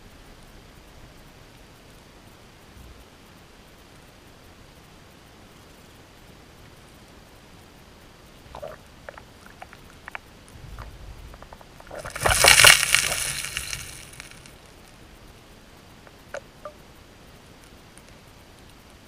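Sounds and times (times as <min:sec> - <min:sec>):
gravel clattering underwater: 0:08.5 - 0:14.5
stone clicks: 0:11.4 - 0:14.5.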